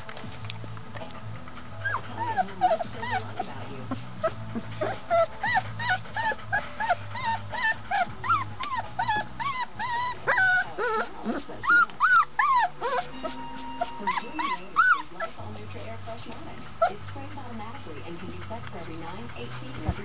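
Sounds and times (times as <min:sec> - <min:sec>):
puppy whimpering and yipping: 0:01.8 - 0:15.4.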